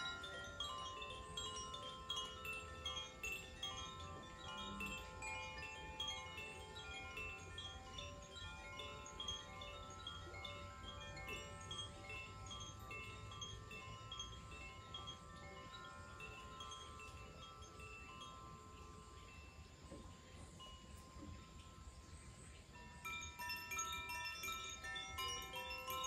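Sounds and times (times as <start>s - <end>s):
wind chimes tinkling: 0.0s - 26.0s.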